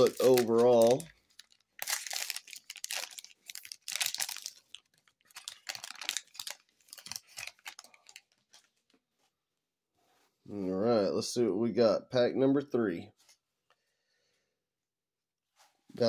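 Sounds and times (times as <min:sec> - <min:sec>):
foil wrapper crinkling and tearing: 0:00.0 - 0:08.9.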